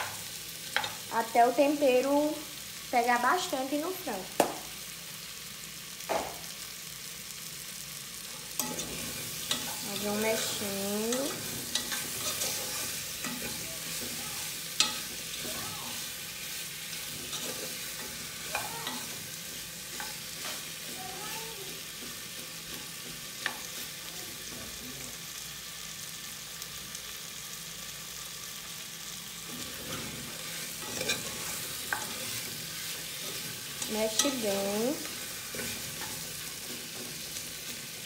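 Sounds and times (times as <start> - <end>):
chicken sizzling in oil: 0.0 - 38.0
spatula scraping pan: 8.4 - 21.0, 29.4 - 38.0.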